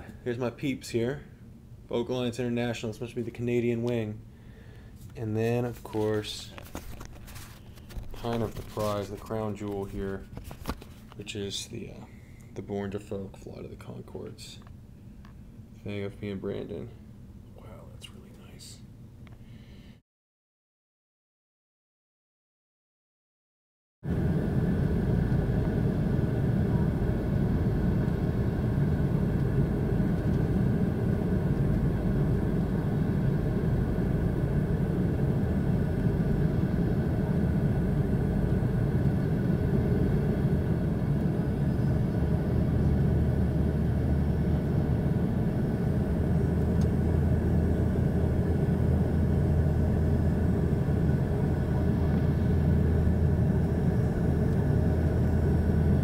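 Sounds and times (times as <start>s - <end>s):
deep steady hum: 24.1s - 56.0s.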